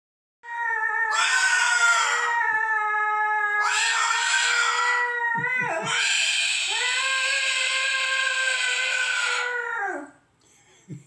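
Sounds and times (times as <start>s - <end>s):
cockatoo calling: 1.1s - 2.4s, 3.6s - 10.1s.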